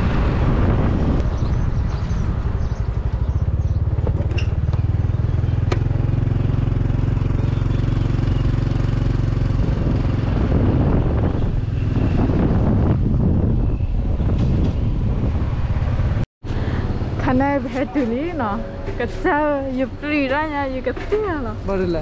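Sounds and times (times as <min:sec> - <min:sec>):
wind on microphone: 0:00.0 - 0:05.3, 0:08.4 - 0:16.2
motorcycle engine running: 0:01.3 - 0:13.6, 0:14.5 - 0:22.0.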